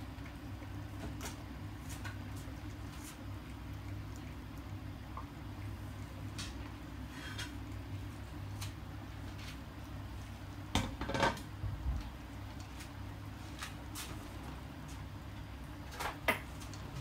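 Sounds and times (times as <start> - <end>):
clattering of metal bowl: 10.8 - 11.4.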